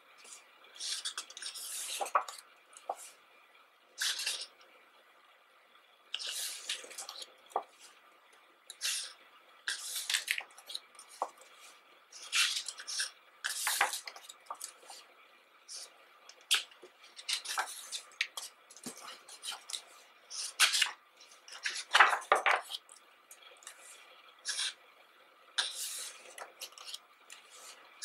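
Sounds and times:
book pages turning: 0.2 - 3.2, 4.0 - 4.5, 6.2 - 8.0, 8.8 - 15.0, 16.5 - 22.8.

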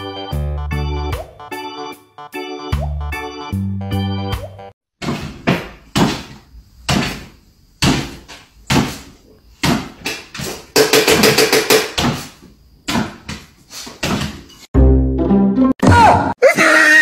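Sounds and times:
dog landing thumps on wooden floor: 5.0 - 10.5, 12.9 - 14.5.

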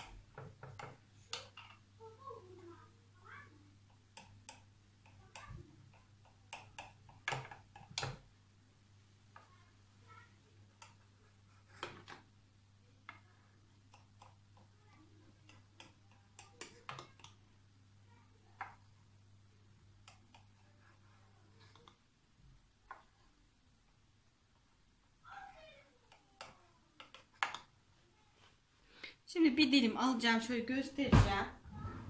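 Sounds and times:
low steady hum: 28.7 - 32.0.

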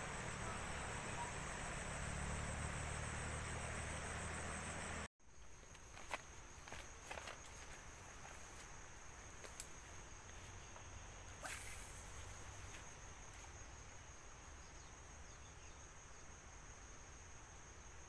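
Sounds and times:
insects chirring: 0.0 - 18.0
fishing rod swish: 11.4 - 12.2.

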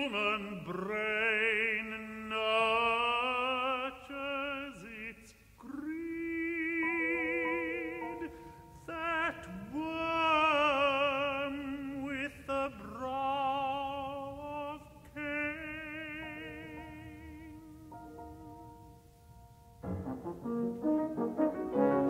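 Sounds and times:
tenor voice singing: 0.0 - 18.3
sustained piano chords: 15.9 - 22.0.

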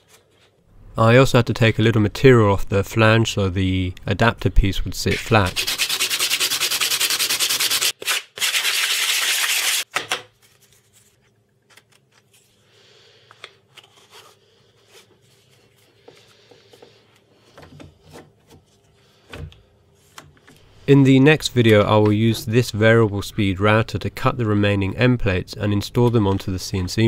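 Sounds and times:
wood rasping on sandpaper: 5.5 - 7.9.

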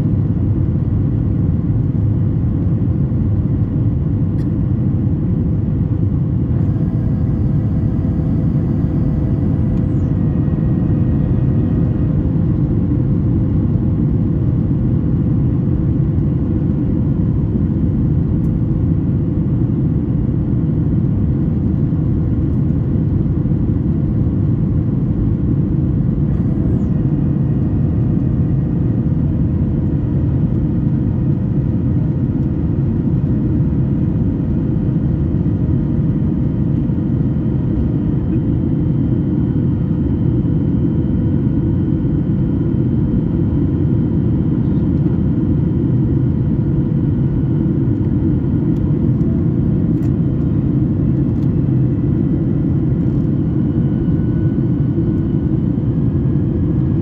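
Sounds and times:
faint steady hum: 0.0 - 15.3
jet engine rumble in cabin: 0.0 - 57.0.

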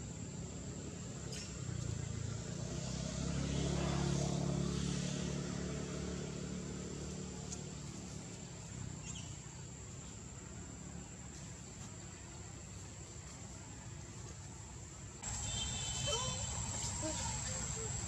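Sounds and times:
passing vehicle engine hum: 0.2 - 9.8, 15.2 - 18.0.

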